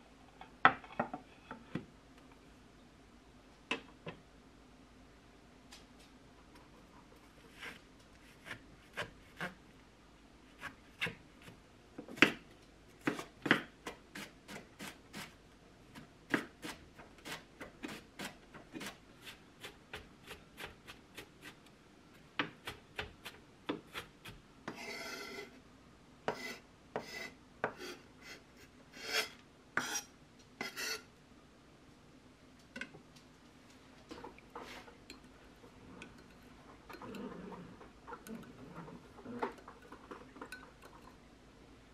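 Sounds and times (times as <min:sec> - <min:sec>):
knife rasping stroke: 0:24.7 - 0:25.6, 0:26.3 - 0:31.1.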